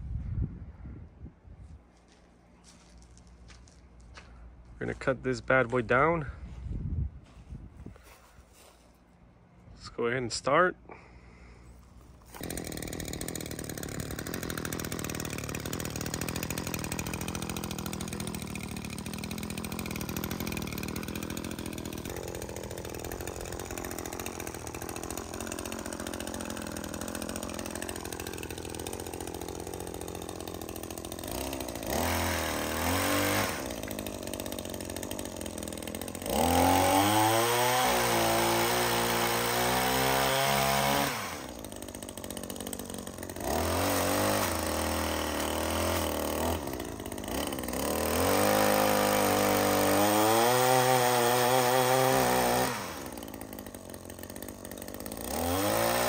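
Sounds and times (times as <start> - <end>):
two-stroke engine idling and revving: 12.3 - 56.0.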